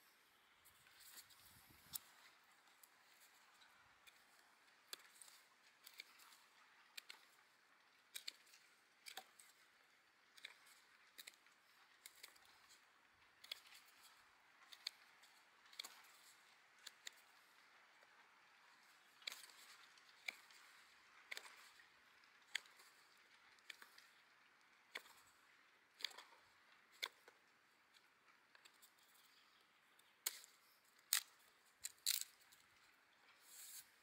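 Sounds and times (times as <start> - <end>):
knife scraping wooden stick: 33.4 - 33.9.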